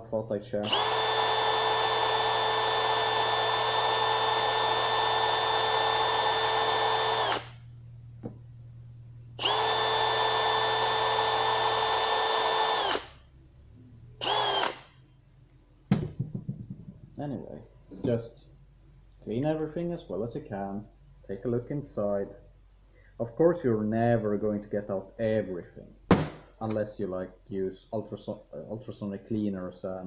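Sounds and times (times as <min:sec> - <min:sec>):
cordless drill running: 0:00.6 - 0:07.7, 0:09.4 - 0:13.2, 0:14.2 - 0:15.0.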